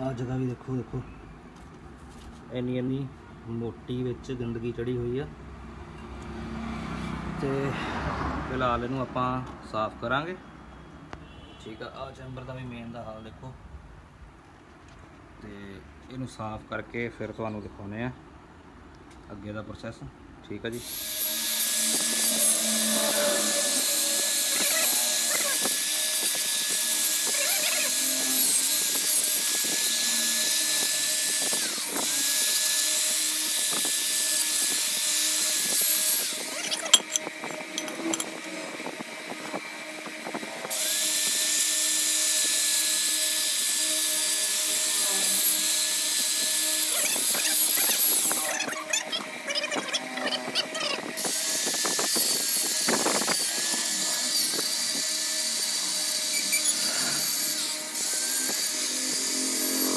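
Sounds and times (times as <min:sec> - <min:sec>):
drill wire brush scraping metal: 0:20.8 - 0:39.0, 0:40.7 - 0:59.9.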